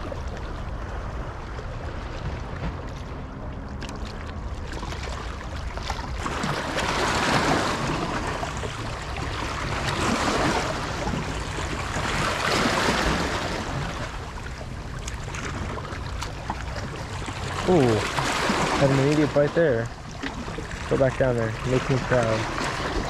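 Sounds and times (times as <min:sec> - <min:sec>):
waves washing against rocks: 0:04.8 - 0:23.0.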